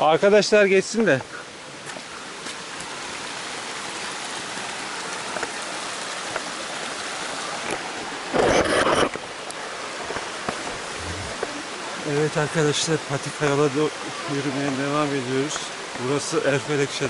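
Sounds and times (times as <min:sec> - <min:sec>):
creek water rushing over rocks: 0:00.0 - 0:17.0.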